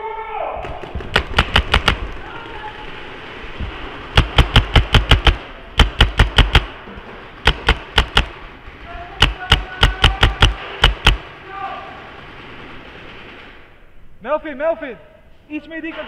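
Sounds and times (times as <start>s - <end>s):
paintball marker firing bursts: 0.6s - 2.3s, 4.0s - 6.8s, 7.4s - 11.3s.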